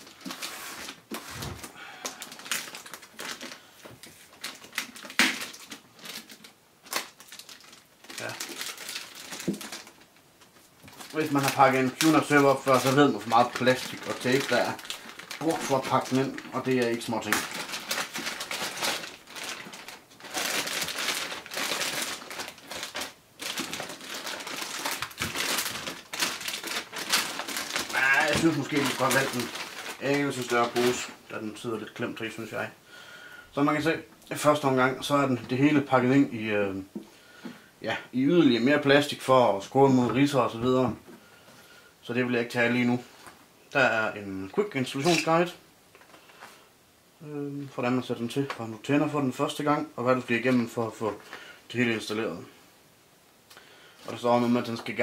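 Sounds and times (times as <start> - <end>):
plastic bag crinkling: 0.0 - 31.2, 44.9 - 46.6.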